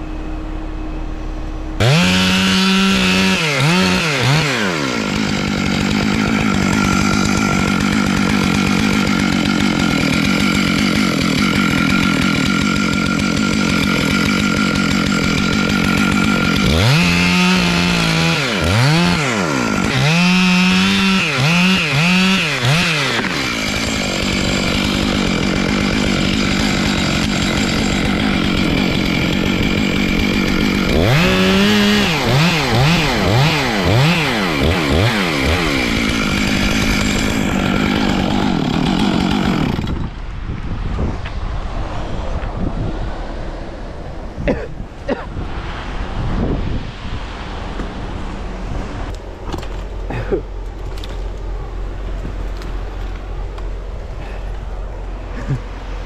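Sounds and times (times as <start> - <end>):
chainsaw cutting wood: 1.8 - 40.2, 49.0 - 54.7.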